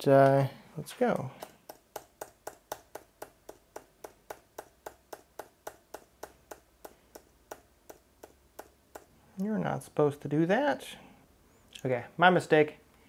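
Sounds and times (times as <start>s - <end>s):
laptop key tapped rapidly: 1.1s - 9.1s.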